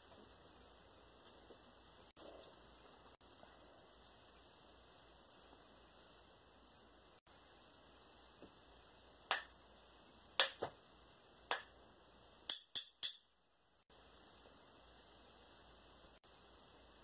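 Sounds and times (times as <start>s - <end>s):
hand slaps: 9.3s - 9.5s, 10.4s - 10.8s.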